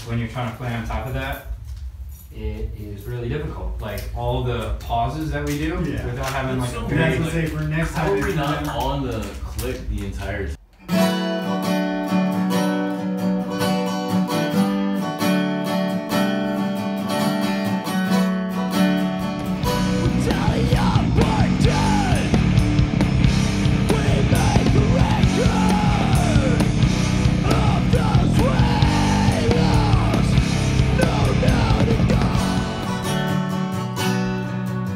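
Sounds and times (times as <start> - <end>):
acoustic guitar chords: 10.6 - 34.9
heavy rock band: 18.8 - 33.8
sliding pitched lines: 19.0 - 33.8.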